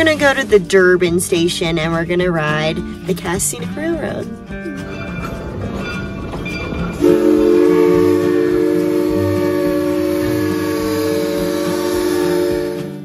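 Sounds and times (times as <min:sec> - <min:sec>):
steam locomotive whistle: 0:06.9 - 0:13.0.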